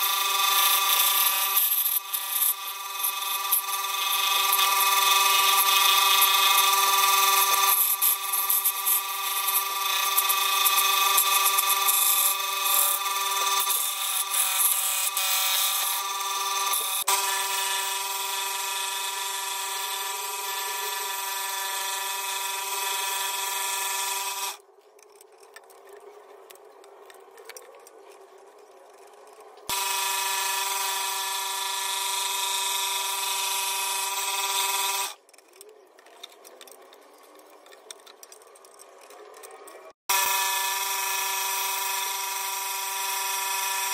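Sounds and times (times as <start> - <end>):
scroll saw whining: 0.0 - 24.6, 28.9 - 35.2, 39.2 - 43.9
faint handling sounds: 24.6 - 29.7.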